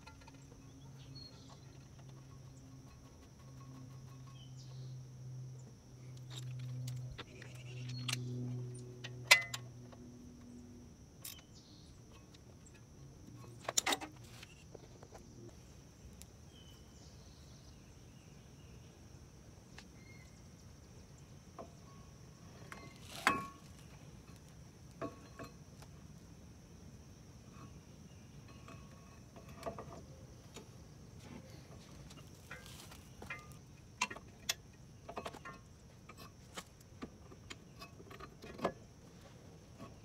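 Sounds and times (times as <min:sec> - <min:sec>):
low hum: 0:00.0 - 0:13.8
high insect drone: 0:00.0 - 0:40.0
metallic clinks of brake parts: 0:09.0 - 0:10.6, 0:11.2 - 0:14.7, 0:21.6 - 0:25.6, 0:32.1 - 0:36.4.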